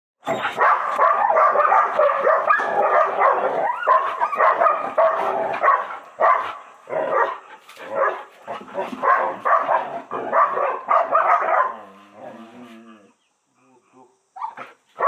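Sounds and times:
dogs whining and barking: 0.2s - 6.4s.

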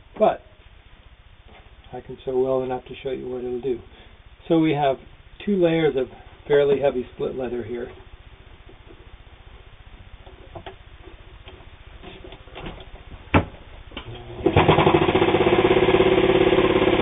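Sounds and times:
sewing machine stitching: 14.4s - 17.0s.

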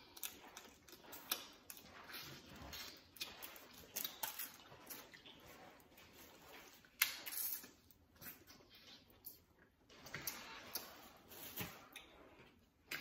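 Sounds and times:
chewing and wet mouth smacks: 0.0s - 5.6s.

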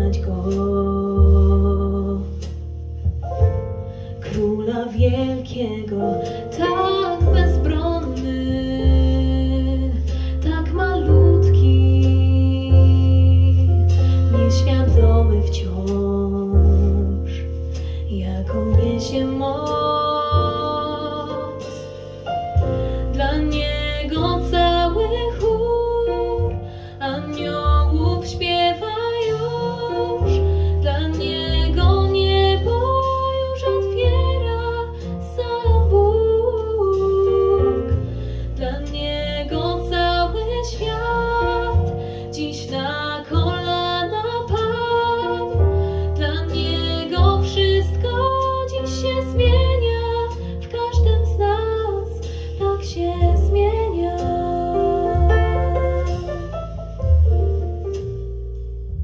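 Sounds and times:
deep sustained bass: 0.0s - 59.0s
piano: 0.0s - 59.0s.

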